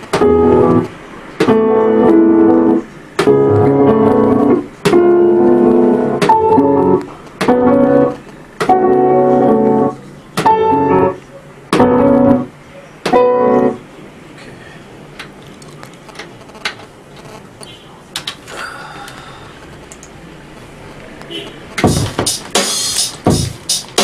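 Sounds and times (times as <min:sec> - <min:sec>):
piano-like chord stabs: 0:00.1 - 0:12.5, 0:13.1 - 0:13.8.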